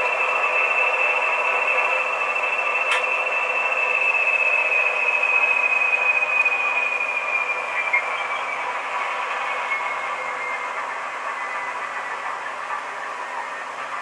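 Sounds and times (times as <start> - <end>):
high whine: 0.0 - 14.0.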